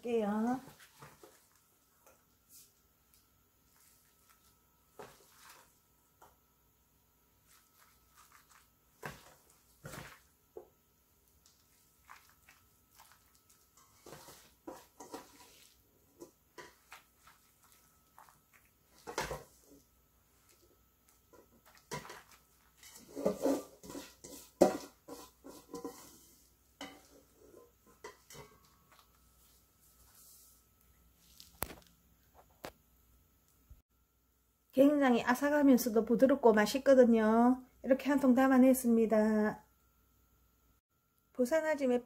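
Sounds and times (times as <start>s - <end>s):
wet squishes of packed cabbage: 7.4s - 10.3s, 11.4s - 15.8s.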